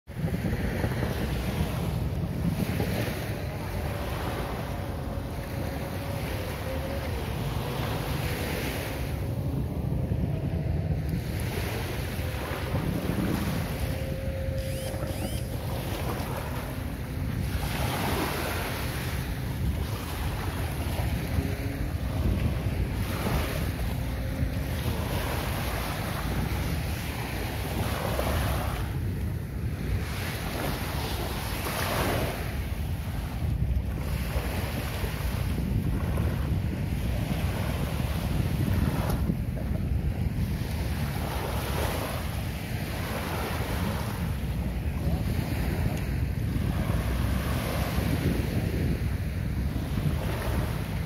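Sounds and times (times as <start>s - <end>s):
small waves lapping on beach: 0.1s - 51.0s
wind buffeting microphone: 0.1s - 51.0s
faint steady drone: 1.9s - 27.8s.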